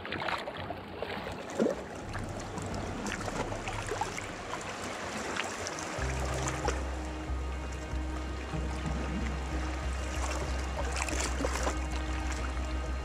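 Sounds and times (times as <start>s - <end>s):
water lapping against rocks: 0.0s - 13.0s
water splashing: 0.0s - 13.0s.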